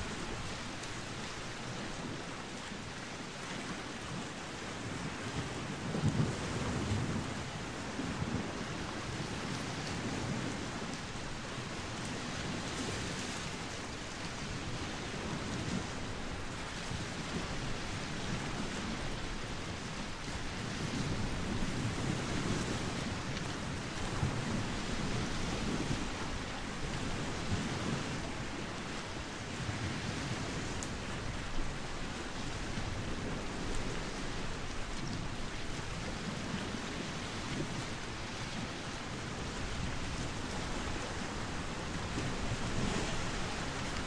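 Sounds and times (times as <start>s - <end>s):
small waves washing ashore: 0.0s - 44.0s
steady wind: 0.0s - 44.0s
wind gusts rumbling on microphone: 0.0s - 44.0s.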